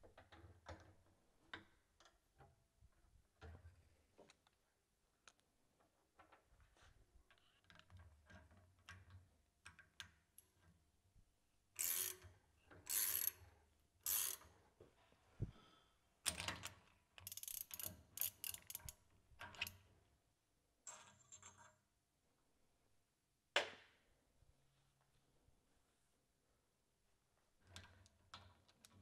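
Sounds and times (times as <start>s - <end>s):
metallic clicking and scraping: 17.2s - 19.7s.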